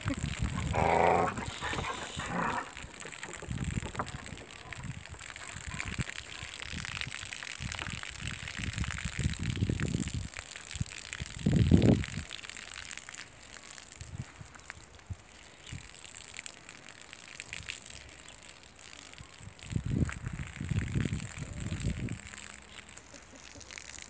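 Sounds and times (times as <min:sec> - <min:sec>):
puppies making low sounds: 0:00.0 - 0:06.6.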